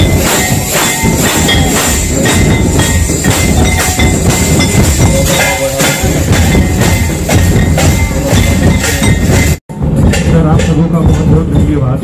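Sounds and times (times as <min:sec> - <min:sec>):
metallic jingling: 0:00.0 - 0:09.6
barrel drums beaten with sticks: 0:00.0 - 0:12.0.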